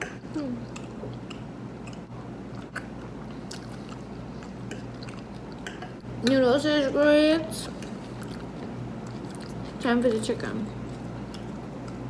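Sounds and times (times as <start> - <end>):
mouth clicks: 0.0 - 2.9
steady low hum: 0.0 - 12.0
person chewing noodles: 0.4 - 5.8, 7.7 - 9.8, 10.8 - 12.0.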